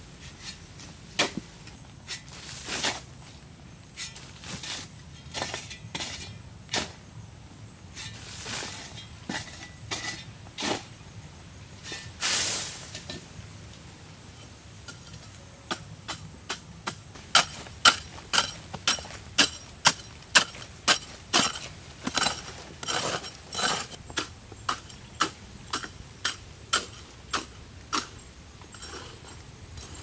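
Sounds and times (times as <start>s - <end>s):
hoe chopping stony earth: 15.7s - 28.2s.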